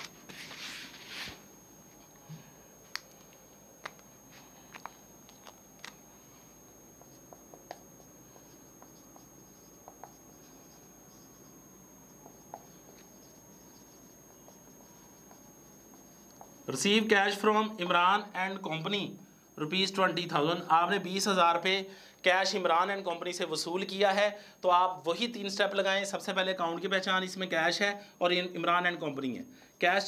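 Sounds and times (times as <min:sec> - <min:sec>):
marker on whiteboard: 0:07.0 - 0:17.4.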